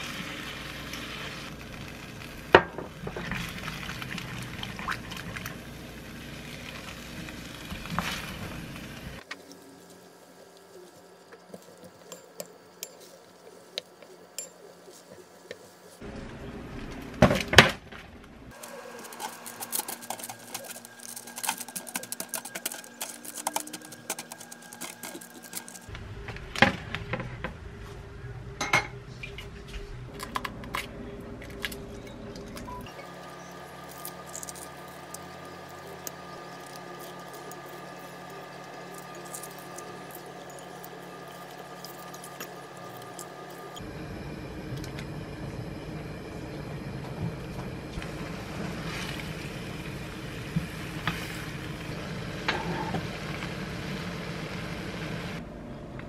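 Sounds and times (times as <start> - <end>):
eggshells crackling: 18.5 - 25.9, 33.2 - 43.8
wooden spoon stirring in pan: 18.6 - 25.9.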